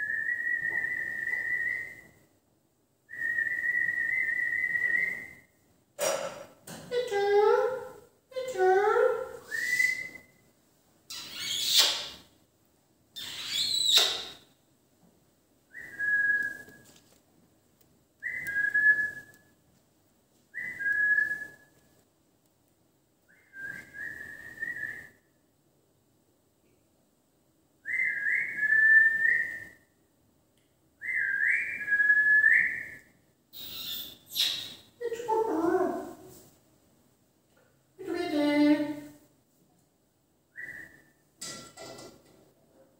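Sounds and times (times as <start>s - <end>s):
parakeet screeching: 11.1s - 12.2s, 13.2s - 14.4s, 33.6s - 34.8s
parakeet whistled notes: 33.6s - 34.8s.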